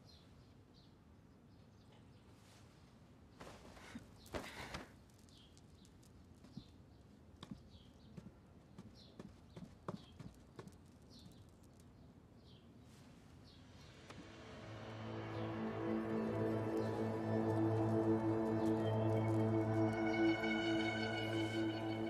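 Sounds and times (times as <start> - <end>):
high falling chirps: 13.6 - 22.0.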